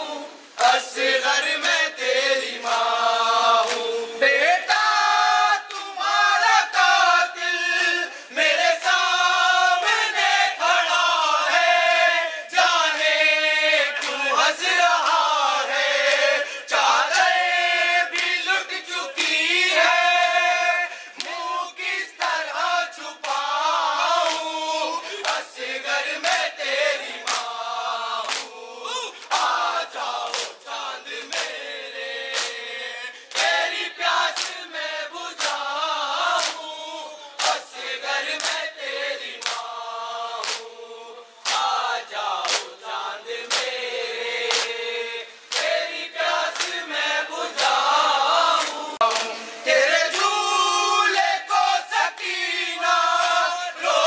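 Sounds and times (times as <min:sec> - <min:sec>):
crowd chanting a lament: 0:00.0 - 0:54.0
chest-beating slaps: 0:25.2 - 0:25.5, 0:27.2 - 0:27.6, 0:28.2 - 0:28.6, 0:30.2 - 0:30.7, 0:32.3 - 0:32.6, 0:34.3 - 0:34.6, 0:36.4 - 0:36.6, 0:39.4 - 0:39.7, 0:40.4 - 0:40.7, 0:41.4 - 0:41.8, 0:42.4 - 0:42.8, 0:43.4 - 0:43.8, 0:44.4 - 0:44.8, 0:45.5 - 0:45.8, 0:46.5 - 0:46.8, 0:48.6 - 0:49.5.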